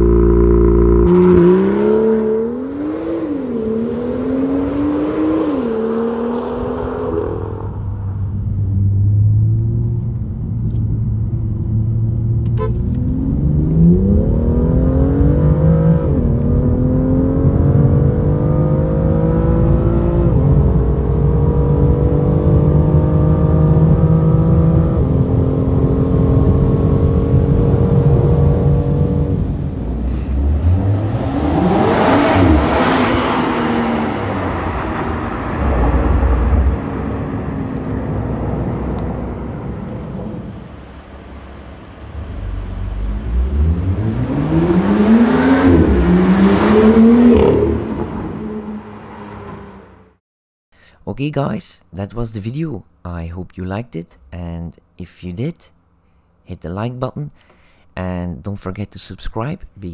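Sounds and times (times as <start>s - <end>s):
car engine accelerating: 0.0s - 50.2s
loud rushing noise: 30.0s - 47.2s.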